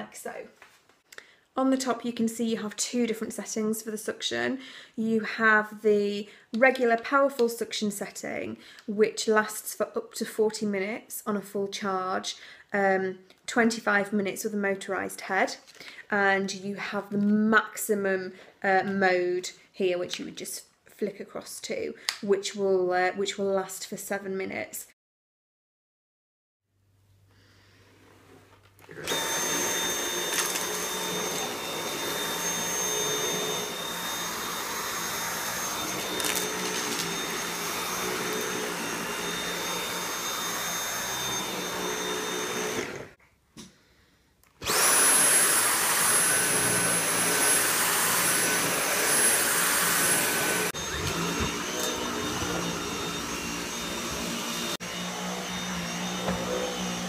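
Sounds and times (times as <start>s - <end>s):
vacuum cleaner motor whine: 28.9s - 43.2s, 44.6s - 57.0s.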